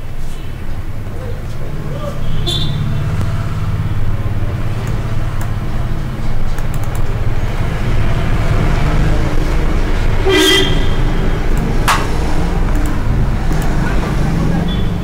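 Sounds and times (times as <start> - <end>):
road traffic rumble: 0.0 - 15.0
car horn toot: 2.2 - 3.4, 10.2 - 11.3
sharp click: 6.5 - 7.1, 11.5 - 13.8.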